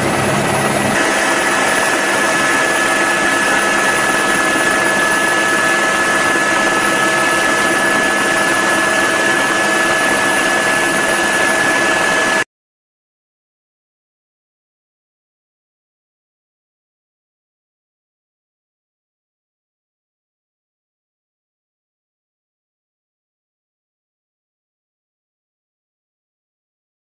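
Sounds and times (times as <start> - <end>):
helicopter cabin rush: 0.0 - 12.4
turbine whine: 0.0 - 12.5.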